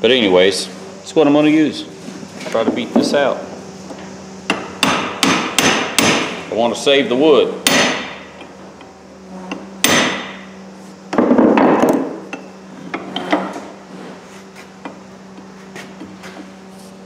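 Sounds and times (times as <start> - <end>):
steady low hum: 0.0 - 17.0
hammer striking metal chisel: 4.5 - 6.3, 7.6 - 8.2, 9.8 - 10.4.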